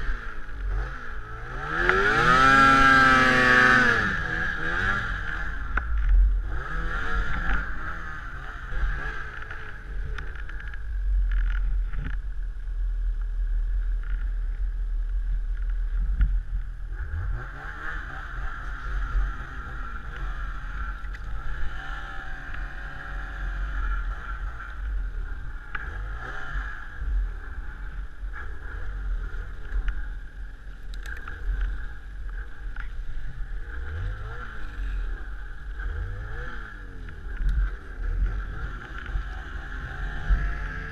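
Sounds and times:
snowmobile engine revving: 0.0s - 10.7s, 16.9s - 30.2s, 31.0s - 40.9s.

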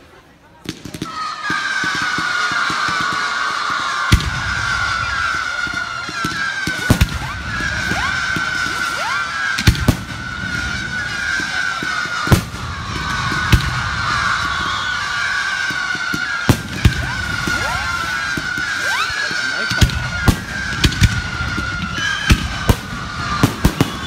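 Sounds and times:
firework shells bursting: 4.1s - 24.0s
short rising whistles: 13.0s - 24.0s.

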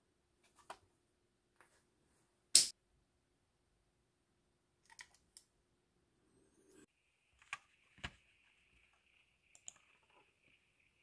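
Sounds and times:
computer mouse clicks: 4.8s - 5.5s, 9.5s - 10.2s.

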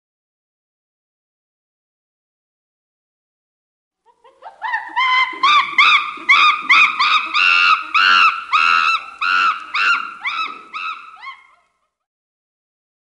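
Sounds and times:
chimpanzee calling: 4.2s - 11.8s.

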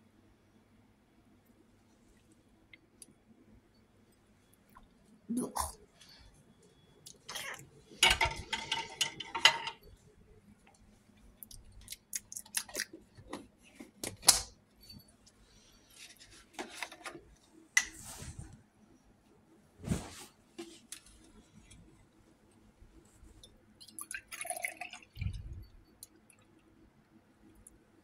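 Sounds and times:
containers clinking and knocking: 8.0s - 9.8s.

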